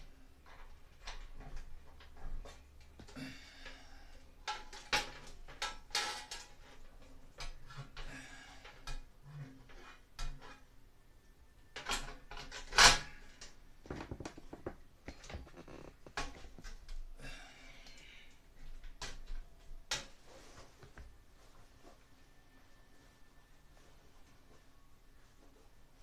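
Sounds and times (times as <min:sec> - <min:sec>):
rustling and scraping: 0:12.4 - 0:17.0, 0:20.0 - 0:22.2.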